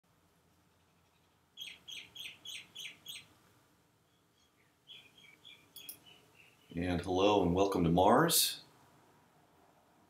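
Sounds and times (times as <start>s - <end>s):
bird chirping: 0.7s - 3.4s, 4.0s - 7.6s.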